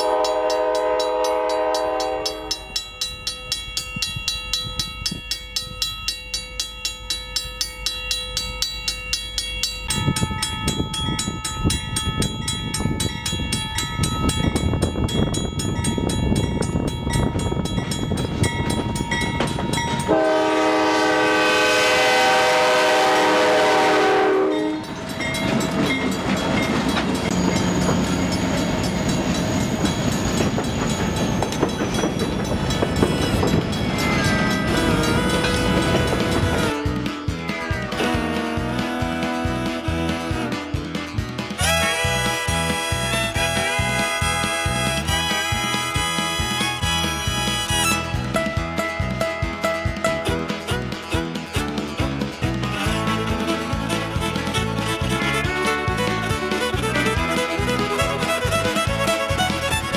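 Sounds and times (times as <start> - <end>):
train horn: 0.0 - 2.8, 20.1 - 24.9, 34.0 - 36.8, 37.6 - 40.6, 41.6 - 48.0, 52.8 - 59.9
train engine and wheel rumble: 0.0 - 59.9
level-crossing bell ringing: 0.1 - 20.3, 24.4 - 36.8.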